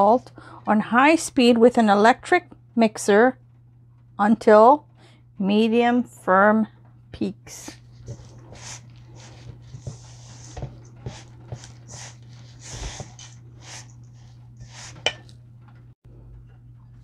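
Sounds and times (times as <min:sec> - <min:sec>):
steady low hum: 0:00.0 - 0:17.0
spoon scraping metal bowl: 0:07.7 - 0:15.4
spoon clinking against bowl: 0:15.1 - 0:15.3.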